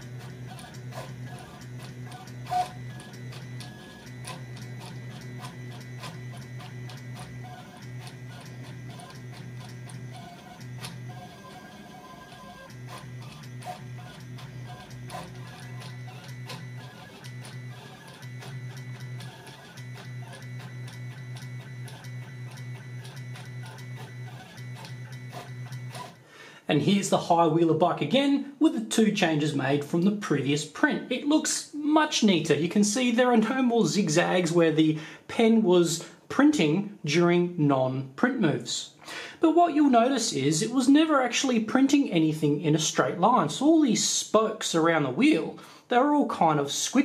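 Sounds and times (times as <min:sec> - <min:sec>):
stepper motors humming: 0:00.0 - 0:26.2.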